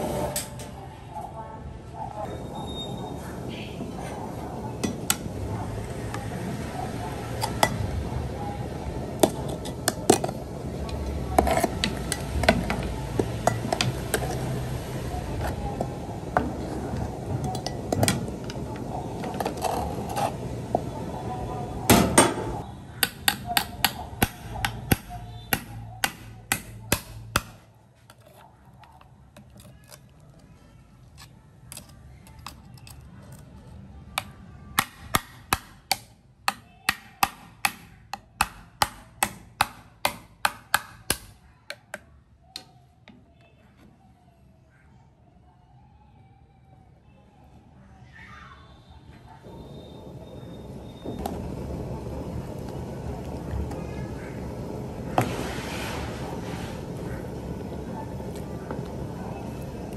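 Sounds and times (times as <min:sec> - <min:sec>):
water boiling in a pan: 0:04.8 - 0:21.8, 0:49.6 - 0:59.9.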